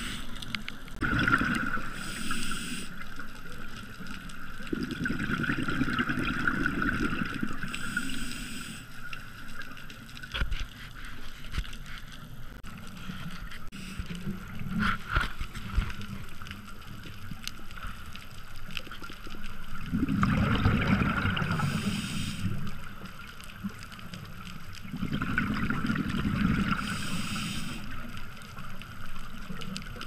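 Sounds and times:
regulator inhale hiss: 0:00.0 - 0:00.5, 0:01.8 - 0:03.1, 0:07.6 - 0:09.0, 0:13.7 - 0:14.2, 0:21.5 - 0:22.7, 0:26.7 - 0:28.0
exhaled air bubbling: 0:00.0 - 0:09.2, 0:19.5 - 0:23.2, 0:24.8 - 0:28.1.

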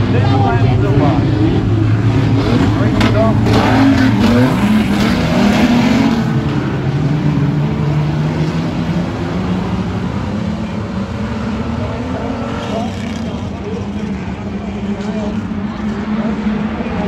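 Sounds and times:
race car engines passing: 0:00.0 - 0:17.0.

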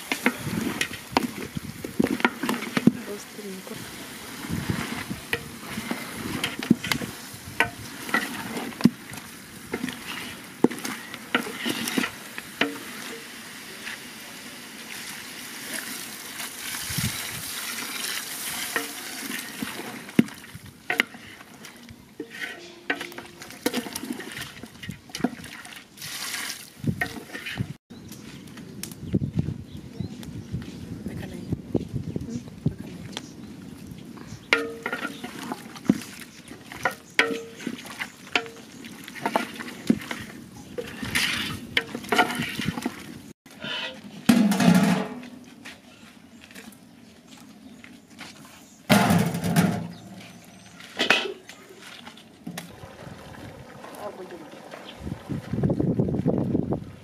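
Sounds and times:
wooden spoon stirring stew: 0:00.0 - 0:13.2, 0:17.8 - 0:25.8, 0:27.0 - 0:27.6, 0:34.5 - 0:44.0
water sizzling in hot pot: 0:03.6 - 0:20.2
spoon knocking metal pot: 0:22.2 - 0:23.4.

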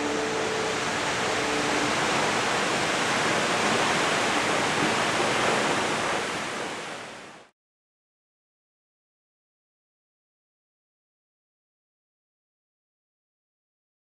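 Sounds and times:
waterfall rushing: 0:00.0 - 0:07.5.

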